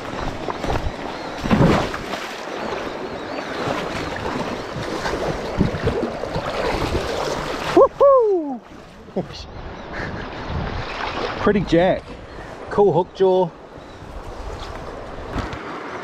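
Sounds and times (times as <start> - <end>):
river water splashing around legs: 0.0 - 9.2, 10.3 - 12.7.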